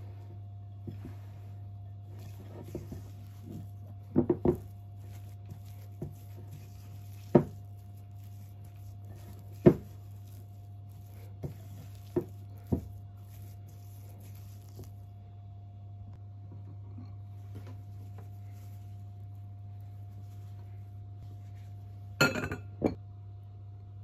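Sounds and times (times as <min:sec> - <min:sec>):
spatula scraping and squishing dough: 0:00.0 - 0:15.3
steady low hum: 0:00.0 - 0:24.0.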